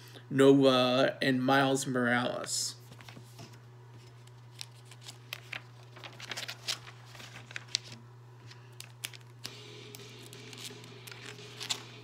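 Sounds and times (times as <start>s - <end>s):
steady low hum: 0.0s - 12.0s
paper pages rustling: 2.8s - 12.0s.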